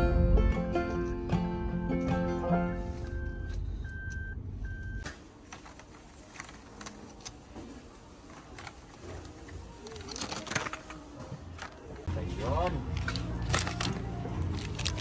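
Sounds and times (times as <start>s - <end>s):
background music: 0.0s - 3.6s, 9.4s - 15.0s.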